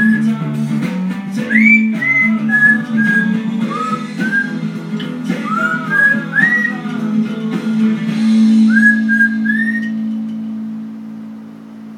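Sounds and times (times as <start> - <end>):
parrot whistling: 0.0 - 0.4, 1.4 - 4.7, 5.3 - 6.9, 8.4 - 10.2
acoustic guitar song: 0.0 - 11.4.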